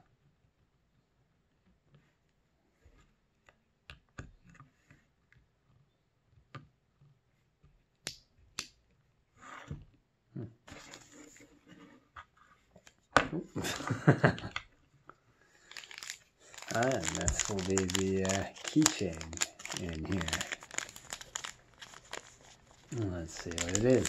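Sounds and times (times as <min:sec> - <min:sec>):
handling noise: 0:15.7 - 0:24.0.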